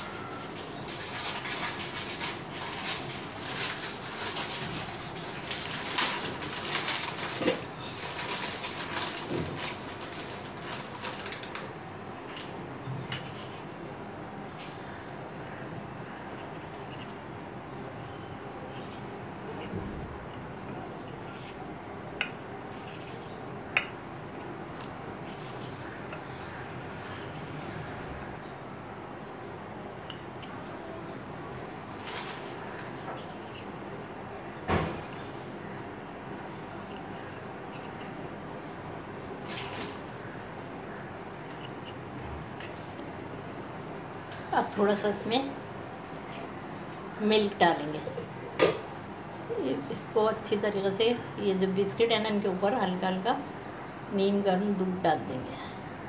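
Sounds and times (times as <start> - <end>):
biscuit packet crinkling: 0.0 - 11.7.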